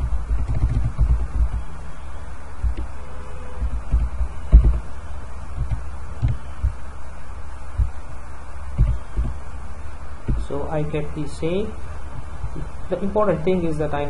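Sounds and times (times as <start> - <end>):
low thumps on microphone: 0.0 - 1.8, 3.6 - 6.8, 7.7 - 8.1, 8.7 - 9.4, 10.2 - 10.5
steady hum: 0.0 - 14.0.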